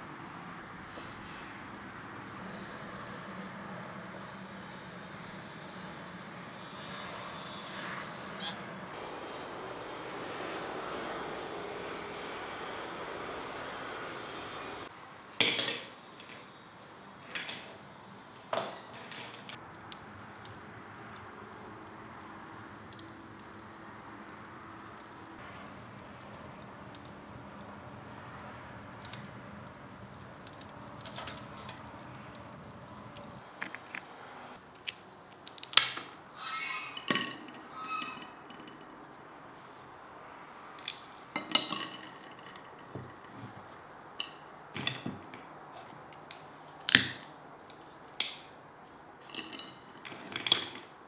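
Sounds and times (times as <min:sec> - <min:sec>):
wood fire crackling: 0:00.0 - 0:08.0, 0:08.9 - 0:14.9, 0:19.6 - 0:36.4, 0:37.0 - 0:51.0
nuts clinking against clay dishes: 0:19.6 - 0:34.0
walnut shells cracking: 0:19.6 - 0:34.0, 0:34.7 - 0:36.1, 0:40.6 - 0:43.3, 0:46.2 - 0:48.5.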